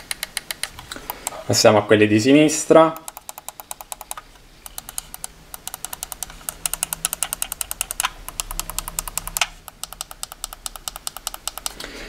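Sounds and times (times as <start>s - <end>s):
fast steady ticking: 2.8s - 11.9s.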